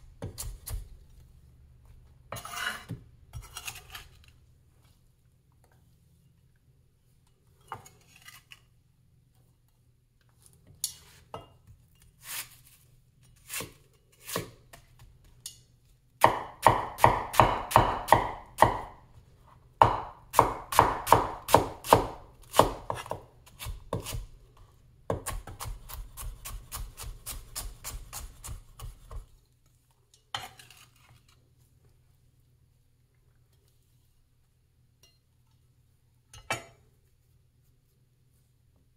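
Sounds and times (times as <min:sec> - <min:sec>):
cleaver chopping on wooden board: 0:16.2 - 0:19.0, 0:19.8 - 0:24.2.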